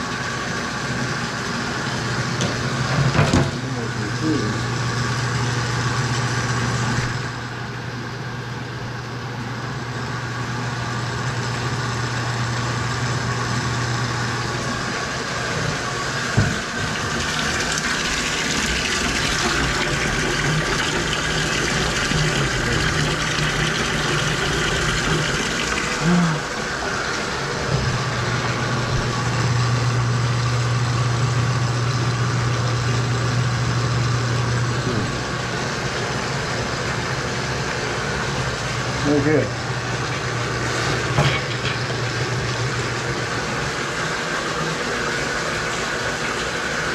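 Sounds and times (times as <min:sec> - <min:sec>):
drain-cleaning machine humming: 0:00.0 - 0:46.9
faucet running water: 0:00.0 - 0:46.9.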